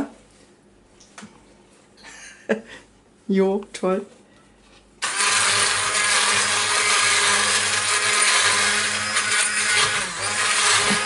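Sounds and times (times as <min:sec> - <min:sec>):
stick blender running: 0:05.0 - 0:11.0.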